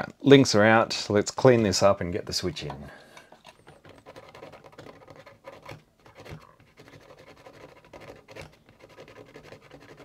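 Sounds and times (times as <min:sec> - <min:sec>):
cotton bud scratching circuit board: 0:03.5 - 0:10.0.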